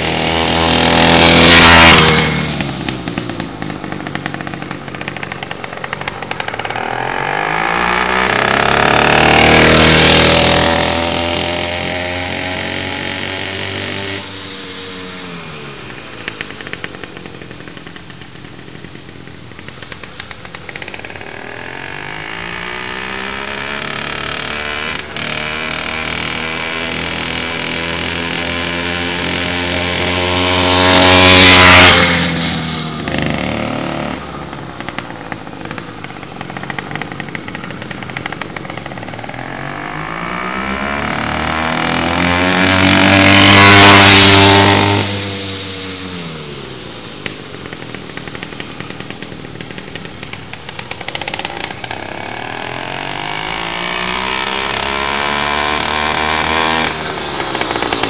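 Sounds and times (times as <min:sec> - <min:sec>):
motorized bicycle passing by: 0:00.0 - 0:13.9, 0:14.6 - 0:45.2, 0:56.8 - 0:58.0.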